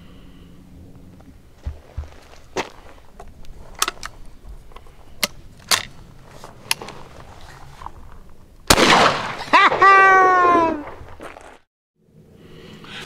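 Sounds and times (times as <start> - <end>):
shotgun handling clicks: 3.4 - 6.0
shotgun shot: 8.7 - 9.5.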